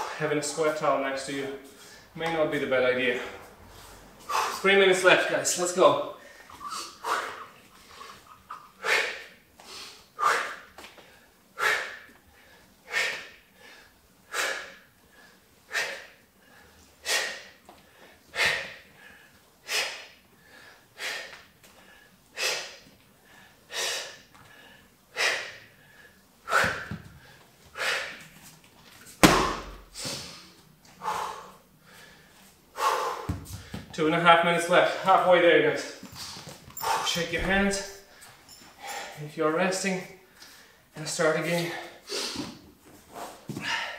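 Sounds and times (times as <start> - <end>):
man exhaling sharply: 6.2 - 8.0
sandbag thudding on mat: 29.2 - 30.0.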